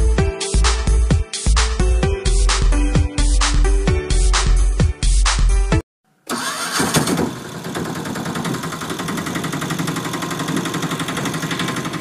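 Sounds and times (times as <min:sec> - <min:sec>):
rickshaw engine starting and idling: 0:06.3 - 0:12.0.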